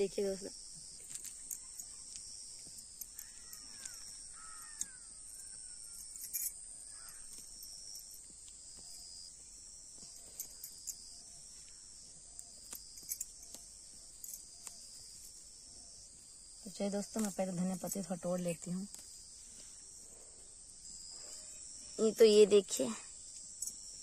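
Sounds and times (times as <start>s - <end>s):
insects chorus: 0.0s - 24.0s
light clicks and rustles: 0.9s - 5.4s
birds calling: 3.2s - 7.4s.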